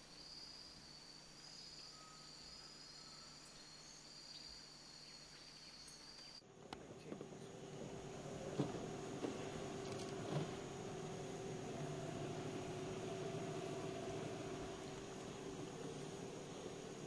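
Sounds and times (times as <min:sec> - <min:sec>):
insect chorus buzzing: 0:00.0 - 0:06.4, 0:07.2 - 0:17.0
low steady hum: 0:00.0 - 0:17.0.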